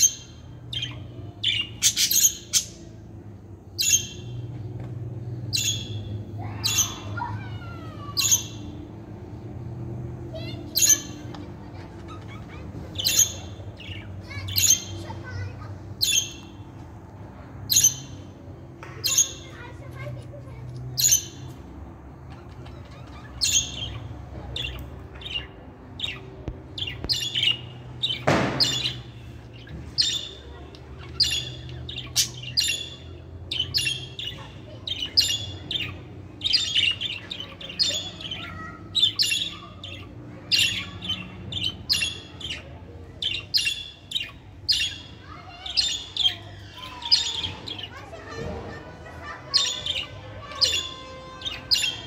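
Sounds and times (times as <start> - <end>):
budgerigars chirping: 0.0 - 2.9, 22.3 - 48.0.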